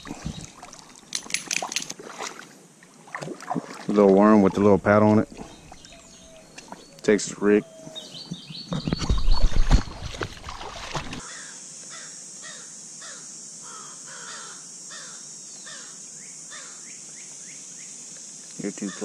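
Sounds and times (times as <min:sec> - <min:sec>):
high insect buzz: 0:10.5 - 0:19.0
bird harsh call: 0:11.2 - 0:16.9, 0:18.8 - 0:19.0.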